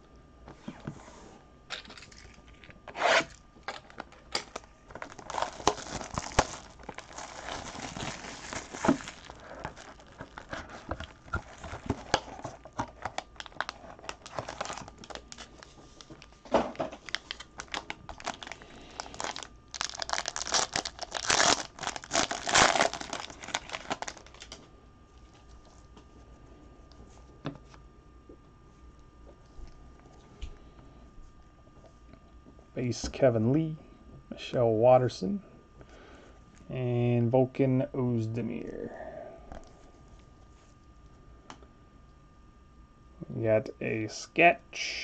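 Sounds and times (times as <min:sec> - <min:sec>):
foil pack tearing and crinkling: 0:01.7 - 0:24.6.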